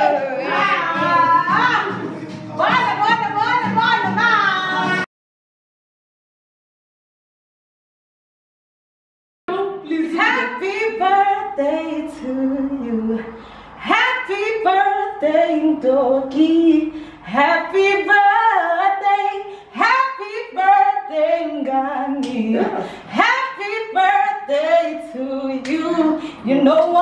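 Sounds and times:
women singing a cappella hymn: 9.5s - 27.0s.

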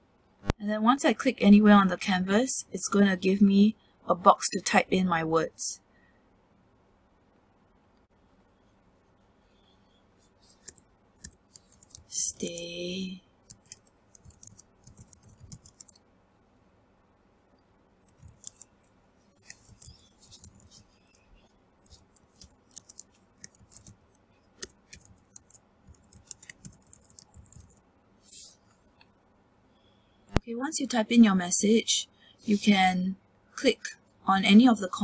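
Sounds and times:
keyboard typing clicks: 13.5s - 16.0s, 24.6s - 27.8s.

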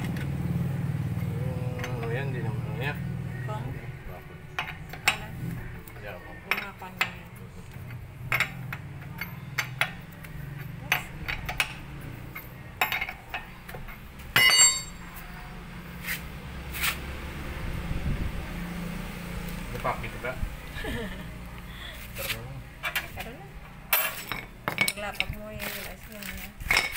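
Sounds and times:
ringing metal clink: 8.3s - 15.2s.

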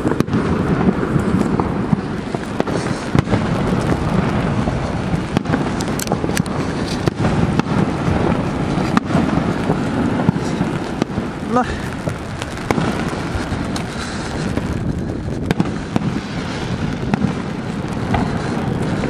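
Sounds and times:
fireworks bangs and crackles: 0.0s - 19.0s
waterfall roar: 0.0s - 19.0s.

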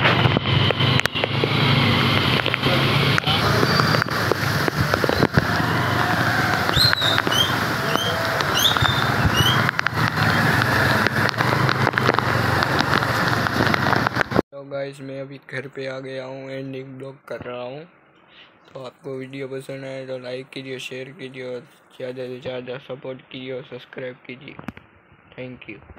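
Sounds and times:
traffic on wet street: 0.0s - 14.4s
rain: 0.2s - 14.4s
raindrops tapping near microphone: 0.2s - 14.4s
high chirps: 1.0s - 11.1s.

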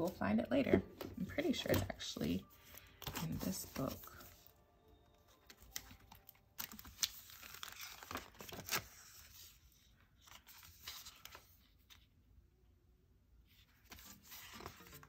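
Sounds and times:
stiff paper crinkling and rustling: 0.0s - 4.5s, 5.3s - 12.0s.

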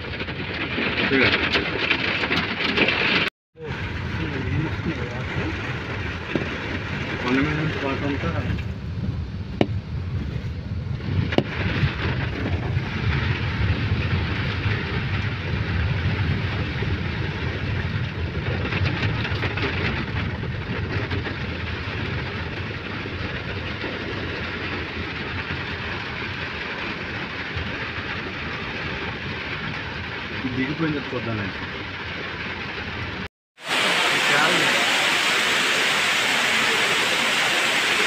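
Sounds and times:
car cabin rumble: 3.6s - 11.7s
water hissing under tyres: 33.6s - 38.0s.

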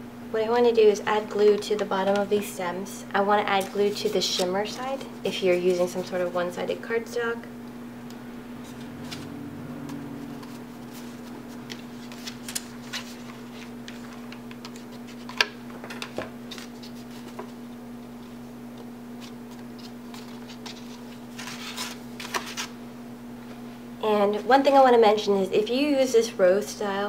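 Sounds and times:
steady low hum: 0.0s - 25.6s
card paper rustling and crinkling: 10.5s - 15.4s, 16.0s - 17.7s, 19.2s - 22.8s.

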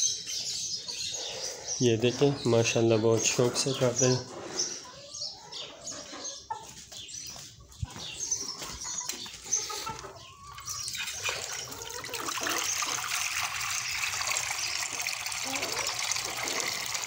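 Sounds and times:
chickens clucking: 0.0s - 17.0s
water pouring into dish: 10.6s - 17.0s.

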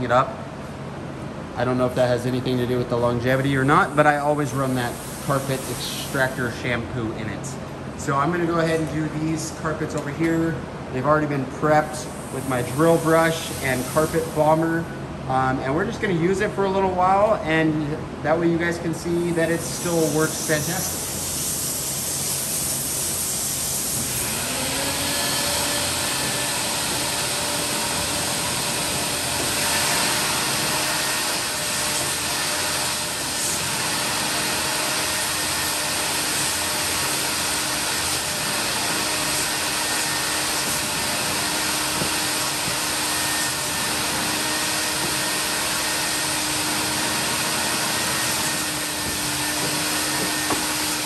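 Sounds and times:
motor whine: 23.9s - 51.0s
carpet extractor vacuum rushing: 24.0s - 51.0s.

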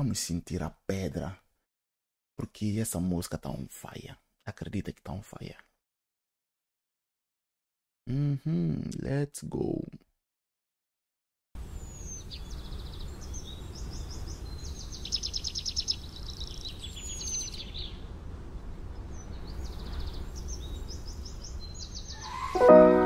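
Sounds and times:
birds chirping and trilling: 11.7s - 23.0s
music: 22.5s - 23.0s.

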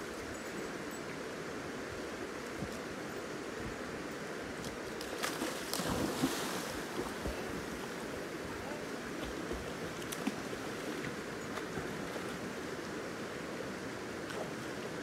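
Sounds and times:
river water rushing: 0.0s - 15.0s
dog splashing into water: 5.1s - 6.8s.

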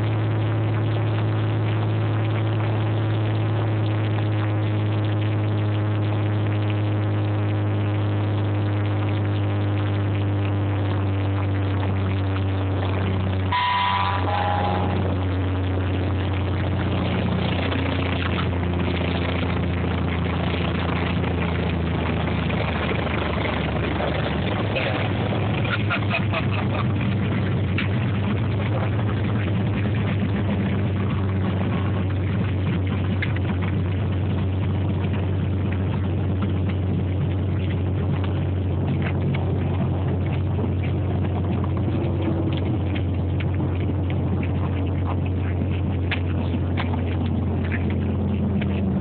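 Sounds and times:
plane rolling on runway: 0.0s - 49.0s
propeller plane engine droning: 0.0s - 49.0s
brief high tone: 13.5s - 15.2s.

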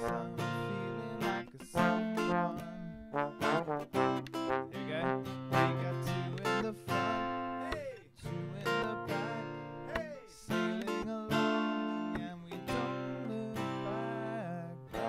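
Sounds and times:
trombone playing: 0.0s - 0.7s, 1.7s - 6.3s
acoustic guitar strumming: 0.0s - 15.0s.

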